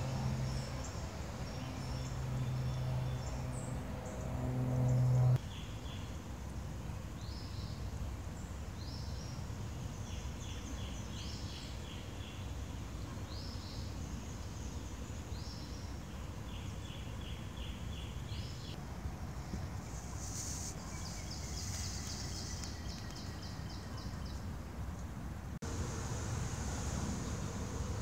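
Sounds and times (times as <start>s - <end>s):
low steady rumble: 0.0s - 5.4s
birds singing: 20.7s - 24.5s.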